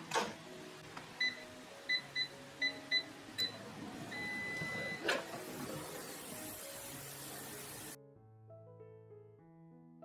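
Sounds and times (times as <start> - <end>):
control panel beeps: 1.2 - 5.2.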